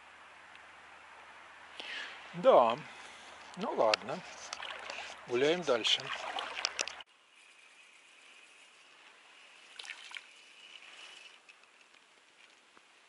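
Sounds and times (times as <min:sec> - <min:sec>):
faint steady high hiss: 0:00.0 - 0:13.0.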